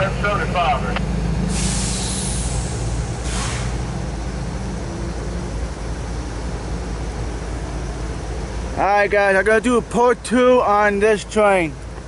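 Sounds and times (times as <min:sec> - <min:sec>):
diesel locomotives idling: 0:00.0 - 0:12.0
short hiss: 0:01.5 - 0:03.8.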